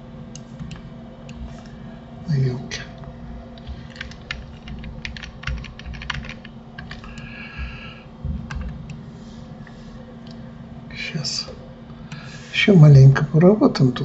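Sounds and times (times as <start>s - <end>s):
steady low hum: 0.0s - 14.0s
keyboard and mouse clicking: 3.9s - 7.3s.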